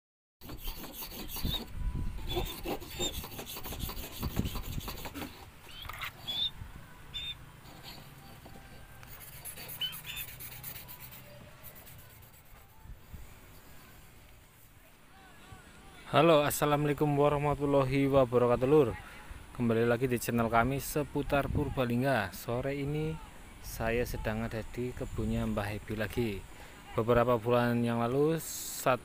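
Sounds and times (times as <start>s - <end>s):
blade rasping on whetstone: 0.4s - 5.5s, 7.6s - 12.7s.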